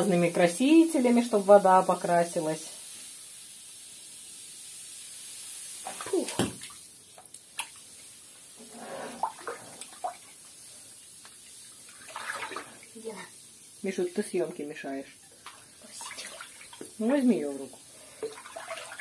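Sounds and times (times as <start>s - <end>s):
water running into bathtub: 0.0s - 19.0s
water splashes: 5.8s - 6.9s, 9.0s - 10.4s, 11.3s - 13.3s, 15.4s - 19.0s.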